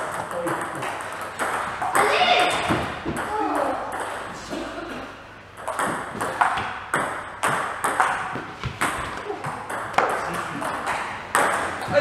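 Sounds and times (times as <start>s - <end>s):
ping pong ball clicking: 5.6s - 11.9s.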